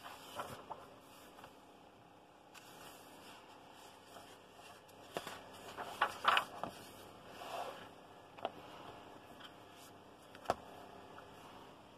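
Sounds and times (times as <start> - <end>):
paper pages flipping: 0.0 - 1.6, 2.5 - 7.1.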